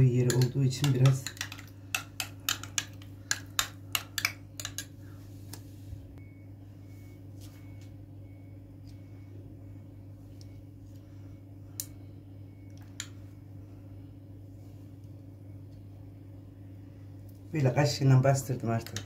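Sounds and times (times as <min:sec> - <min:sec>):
low hum: 0:00.0 - 0:19.0
spoon clicking against container: 0:00.2 - 0:04.9.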